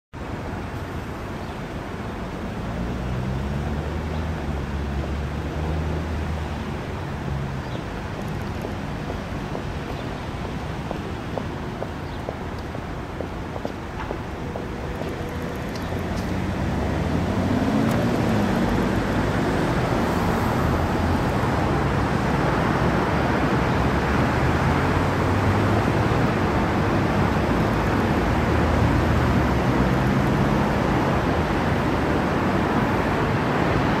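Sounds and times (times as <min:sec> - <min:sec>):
road traffic noise: 0:00.1 - 0:34.0.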